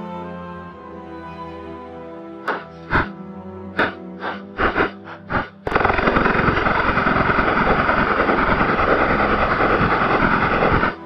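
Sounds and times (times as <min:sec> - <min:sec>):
airsoft gun full-auto burst: 0:03.8 - 0:11.0.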